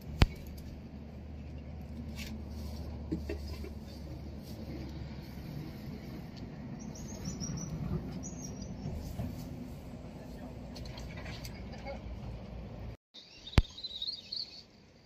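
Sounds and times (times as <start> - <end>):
low harbour rumble: 0.0 - 13.0
faint high bird chirps: 6.8 - 8.9, 13.2 - 14.8.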